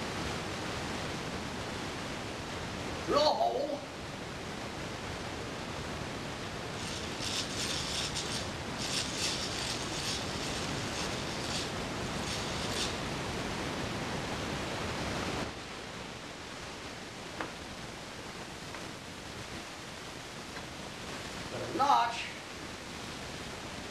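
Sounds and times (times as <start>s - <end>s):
hand drill gears whirring: 6.8s - 13.0s.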